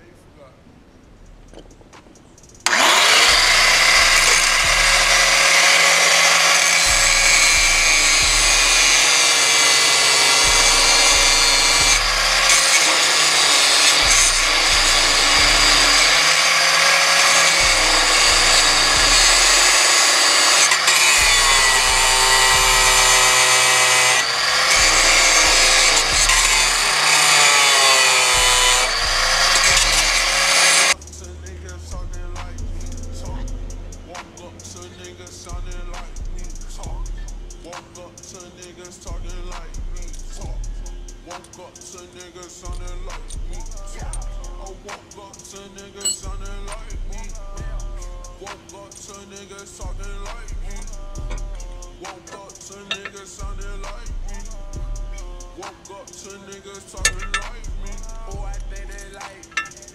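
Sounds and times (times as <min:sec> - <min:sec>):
angle grinder cutting bolt: 0:01.5 - 0:31.0, 0:45.0 - 0:47.0, 0:51.2 - 0:54.1, 0:55.6 - 0:59.9.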